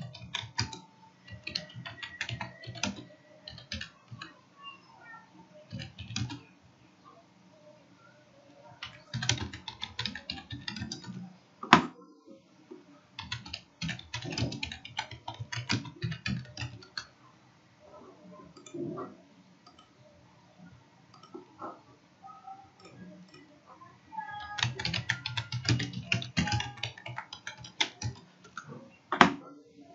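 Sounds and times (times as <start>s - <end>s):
computer keyboard typing: 0.0s - 4.4s, 5.6s - 6.5s, 8.8s - 11.3s, 13.2s - 17.1s, 19.6s - 20.0s, 24.3s - 29.4s.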